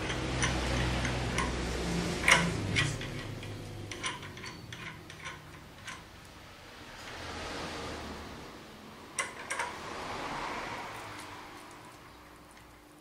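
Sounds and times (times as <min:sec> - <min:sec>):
metal press clicks and knocks: 0:02.2 - 0:06.1.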